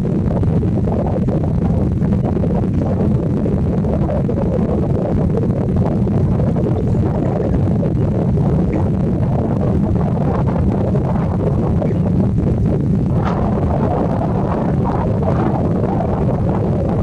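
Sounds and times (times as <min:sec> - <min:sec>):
loud low rumble: 0:00.0 - 0:17.0.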